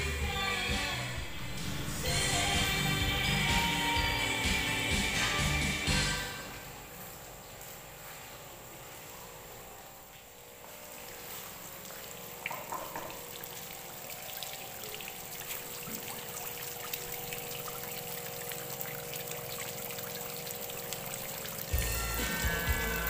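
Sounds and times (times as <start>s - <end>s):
water pouring into pond: 11.1s - 23.0s.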